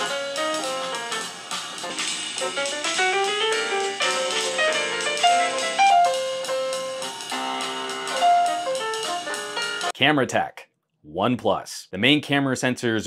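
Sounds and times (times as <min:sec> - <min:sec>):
jazzy piano and drums music: 0:00.0 - 0:10.0.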